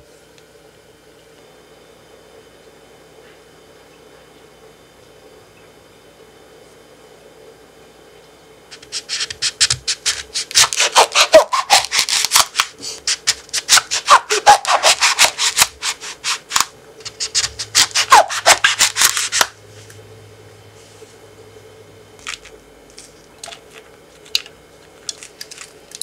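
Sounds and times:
knife sawing through fruit rind: 8.8s - 19.6s.

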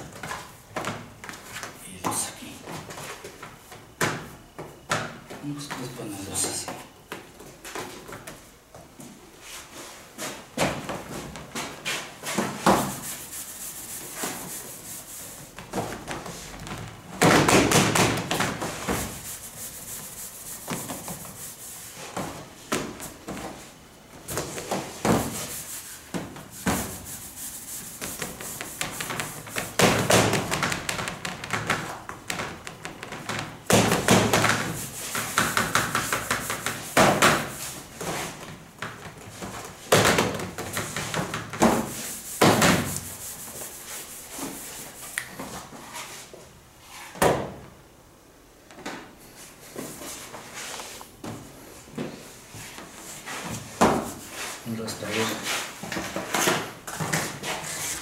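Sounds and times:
dough rubbing on steel table: 11.9s - 15.6s, 18.6s - 22.2s, 24.5s - 30.0s, 41.8s - 47.2s.

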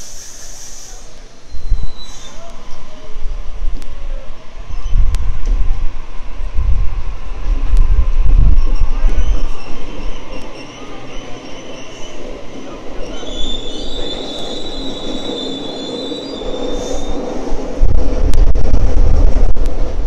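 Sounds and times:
steel wheels squealing on rails: 0.0s - 3.0s, 4.1s - 5.5s, 8.4s - 17.7s
electric train rumbling: 0.0s - 20.0s.

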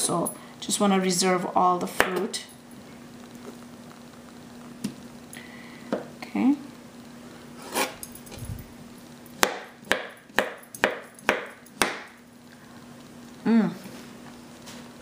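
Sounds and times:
knife chopping into board: 9.4s - 12.1s.

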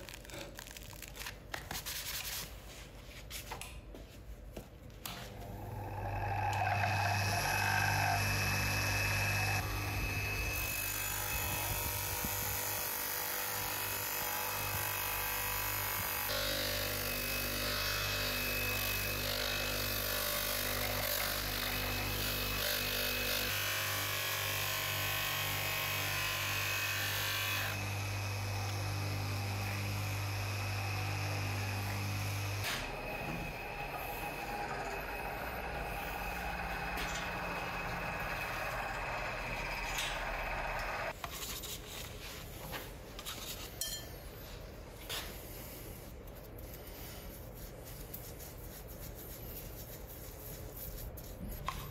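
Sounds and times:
polishing motor humming: 5.4s - 12.8s, 16.3s - 41.2s.

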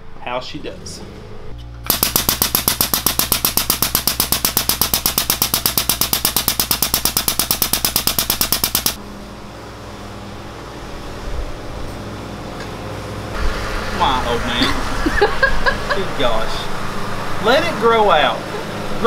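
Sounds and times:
hydraulic foot pump chattering: 1.9s - 9.0s
low steady hum: 8.9s - 19.0s.

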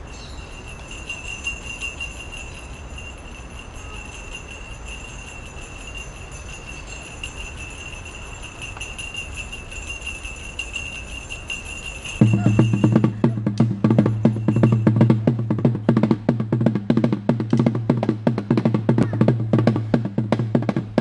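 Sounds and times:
high-pitched insect drone: 0.0s - 13.1s.

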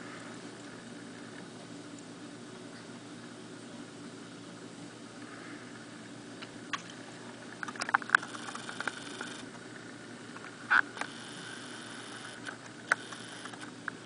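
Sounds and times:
sharp ticks and clicks: 7.6s - 9.4s.

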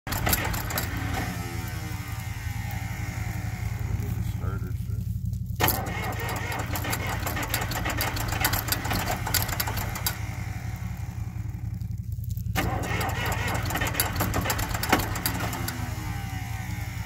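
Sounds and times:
tractor engine droning: 0.0s - 17.0s.

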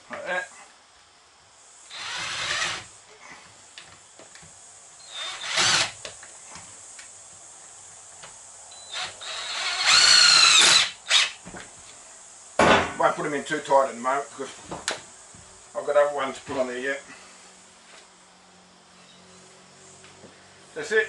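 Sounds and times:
cordless drill driving screws: 1.9s - 2.9s, 5.1s - 6.1s, 8.9s - 11.4s.

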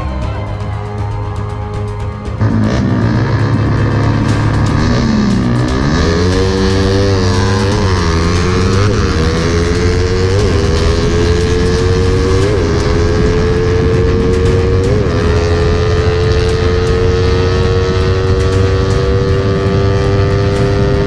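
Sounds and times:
motorcycle engine at speed: 0.0s - 21.0s
wind rumble on microphone: 6.2s - 21.0s.

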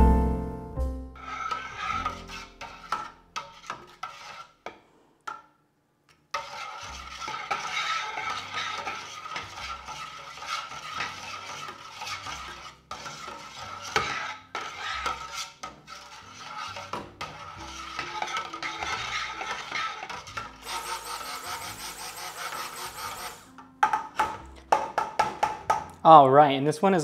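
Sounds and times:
stick blender motor whine: 20.6s - 23.5s
spatula knocking against pot: 23.8s - 25.9s.

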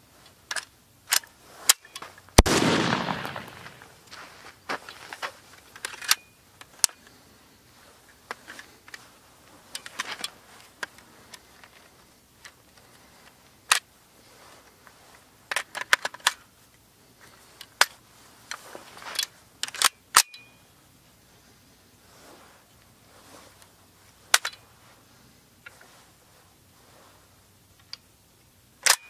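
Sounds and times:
metallic rifle action clicks: 0.5s - 3.8s, 5.7s - 7.1s, 15.5s - 16.5s, 19.2s - 20.6s, 24.3s - 24.6s, 28.8s - 29.0s
soft rustling: 1.3s - 19.6s, 20.5s - 28.6s.

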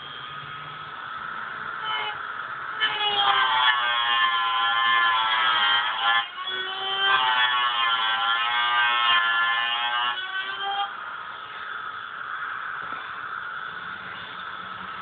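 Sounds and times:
electric drill whining into metal: 0.0s - 11.7s.

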